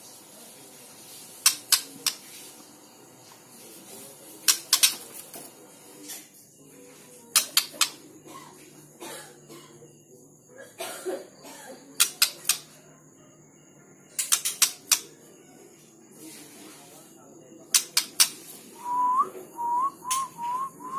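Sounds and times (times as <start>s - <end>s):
bird clicking and tapping in cage: 1.4s - 2.2s, 4.5s - 5.1s, 7.3s - 8.0s, 12.0s - 12.7s, 14.2s - 15.1s, 17.8s - 18.4s.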